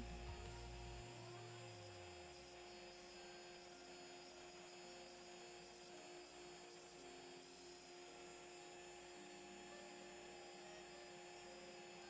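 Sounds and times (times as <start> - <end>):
router spindle hum: 0.0 - 12.0.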